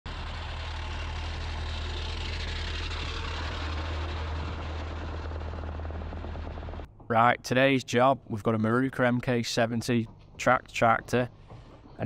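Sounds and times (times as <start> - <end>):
crawler tractor diesel engine: 0.1 - 12.0.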